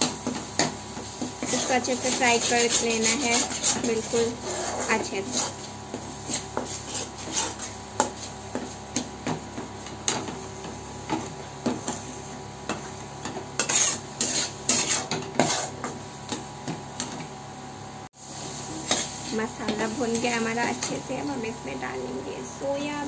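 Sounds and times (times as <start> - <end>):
steel spatula scraping metal pan: 1.4 - 5.6, 6.3 - 7.8, 13.6 - 15.8.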